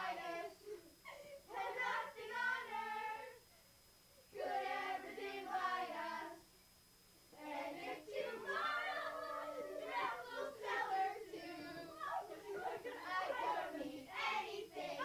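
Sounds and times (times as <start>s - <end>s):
children singing: 1.5s - 3.4s, 4.4s - 6.4s, 7.4s - 15.0s.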